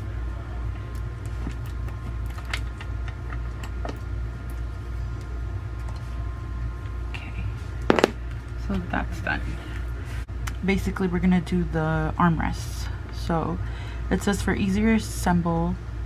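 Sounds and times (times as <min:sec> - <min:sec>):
steady low hum: 0:04.3 - 0:08.7.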